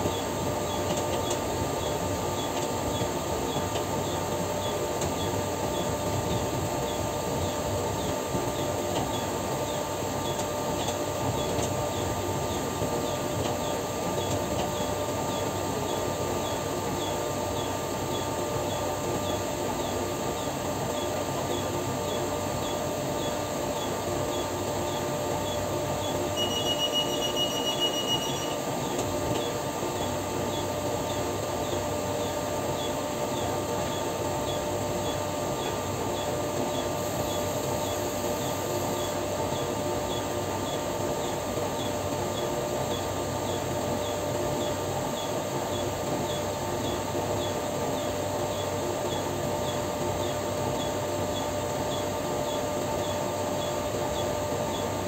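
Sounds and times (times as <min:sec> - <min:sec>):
high electronic beep: 0:26.4 - 0:28.6.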